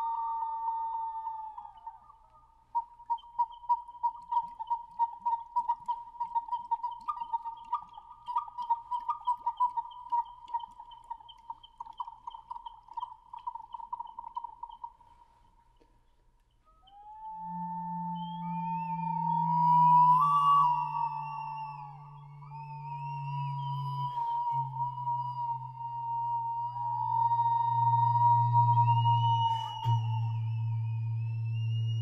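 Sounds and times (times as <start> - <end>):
warbling bird-like whistle: 0.0 - 15.1, 16.7 - 32.0
sliding whistle tones: 16.6 - 32.0.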